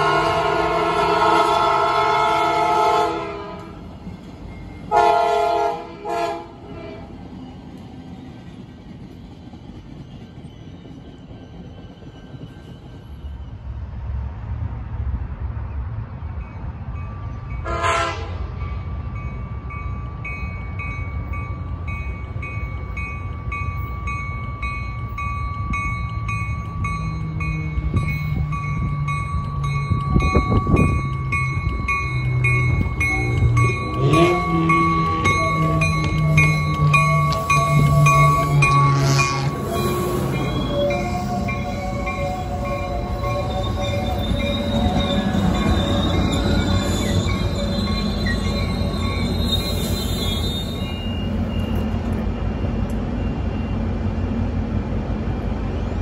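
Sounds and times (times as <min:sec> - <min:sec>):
train horn blowing: 0:00.0 - 0:03.8, 0:04.9 - 0:07.2, 0:17.6 - 0:18.5, 0:37.3 - 0:46.3
train rumbling: 0:00.0 - 0:56.0
train bell ringing: 0:04.0 - 0:05.0, 0:16.3 - 0:54.0.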